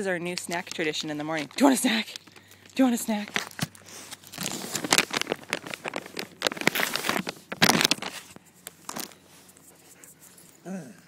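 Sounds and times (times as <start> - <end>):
plastic snack bag crinkling: 0.0 - 9.7.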